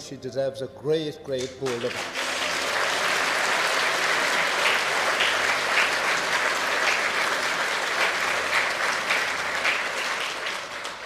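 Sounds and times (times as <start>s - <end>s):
audience applauding: 1.4s - 11.0s.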